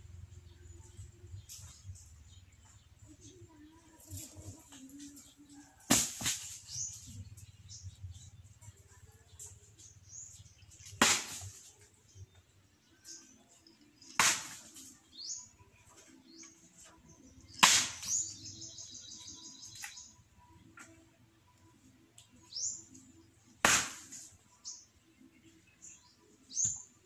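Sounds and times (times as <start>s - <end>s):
birds chirping: 0.0s - 5.8s, 6.6s - 27.0s
blade chopping coconuts: 5.9s - 6.8s, 10.8s - 11.6s, 14.0s - 14.8s, 17.5s - 18.3s, 23.6s - 24.3s
bird trill: 17.3s - 20.2s.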